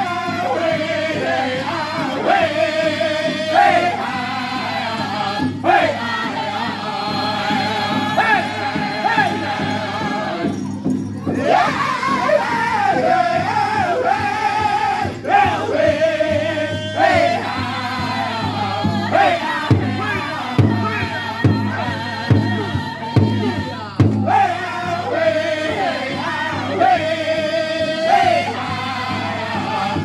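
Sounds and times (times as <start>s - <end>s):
men singing together: 0.0s - 30.0s
big drum strikes: 12.8s - 25.0s.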